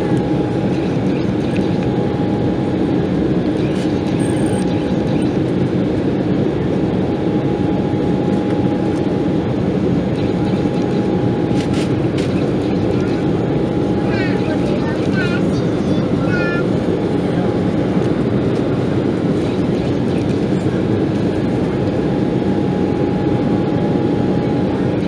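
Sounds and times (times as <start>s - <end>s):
jet engine rumble: 0.0s - 25.0s.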